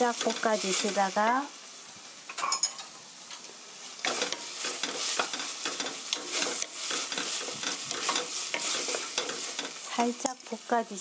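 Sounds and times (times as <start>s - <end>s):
sauce sizzling in a frying pan: 0.0s - 11.0s
wooden spatula scraping pan: 4.0s - 9.9s.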